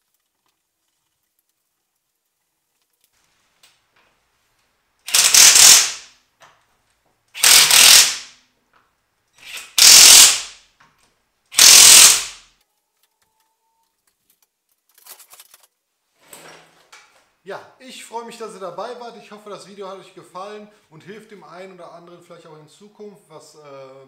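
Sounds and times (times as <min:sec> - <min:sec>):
impact wrench hammering bolts: 0:05.1 - 0:06.1, 0:07.4 - 0:08.3, 0:09.4 - 0:10.6, 0:11.6 - 0:12.4.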